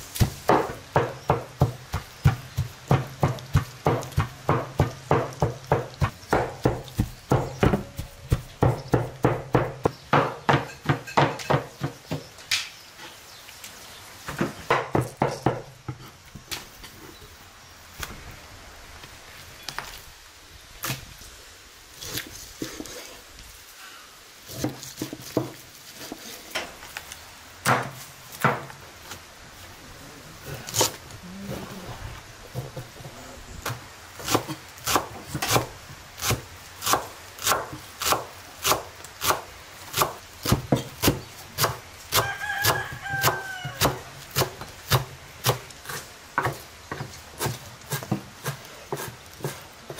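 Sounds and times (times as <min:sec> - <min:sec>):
knife chopping on wooden board: 0:00.2 - 0:12.3.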